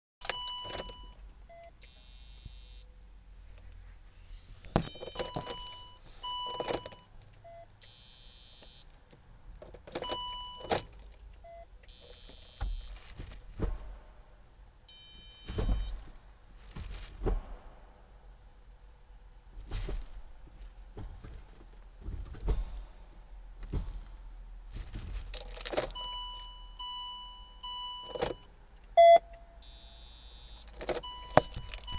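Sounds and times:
dashboard beeps: 0.2s - 2.8s, 4.8s - 8.8s, 10.0s - 10.9s, 14.9s - 16.0s, 26.0s - 31.9s
gearbox actuator clunks: 30.6s - 31.9s.

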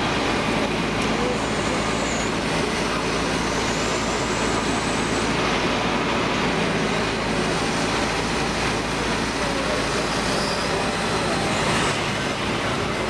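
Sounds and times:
excavator diesel engine running: 0.0s - 13.0s.

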